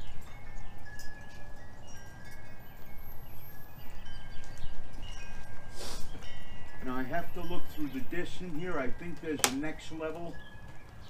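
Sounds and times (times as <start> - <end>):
wind chimes ringing: 0.0 - 11.0.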